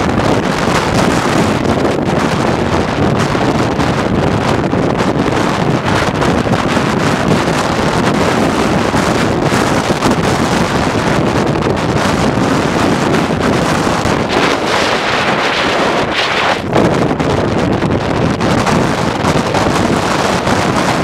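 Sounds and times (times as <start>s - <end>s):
wind buffeting microphone: 0.0s - 21.0s
waves breaking and spraying: 12.3s - 17.0s.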